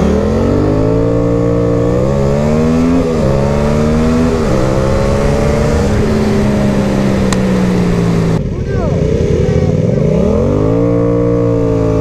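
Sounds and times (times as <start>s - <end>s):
motorcycle engine accelerating: 0.0s - 12.0s
wind rush over microphone: 0.8s - 8.5s.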